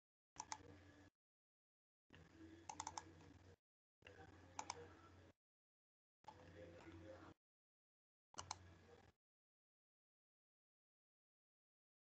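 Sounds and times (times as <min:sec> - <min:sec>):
computer clicks: 0:00.4 - 0:00.7, 0:02.1 - 0:03.3, 0:04.0 - 0:04.8, 0:08.4 - 0:08.7.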